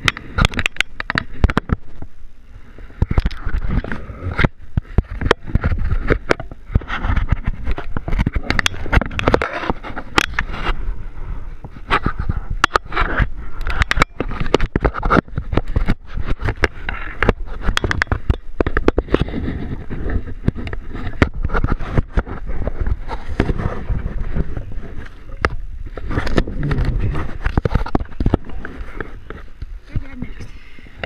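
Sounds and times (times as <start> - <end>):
camera handling clicks and knocks: 0.0 - 1.8, 10.1 - 10.4, 13.6 - 19.2
low rumble: 18.4 - 30.8.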